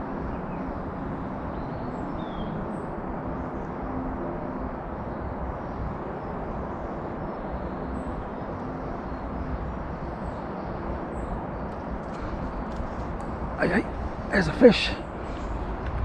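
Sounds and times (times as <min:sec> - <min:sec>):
low outdoor rumble: 0:10.0 - 0:16.0.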